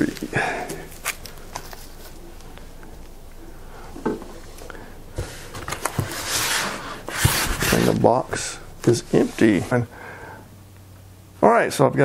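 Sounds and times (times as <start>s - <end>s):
foam packing rustling and scraping: 0.0s - 3.0s, 4.3s - 9.9s.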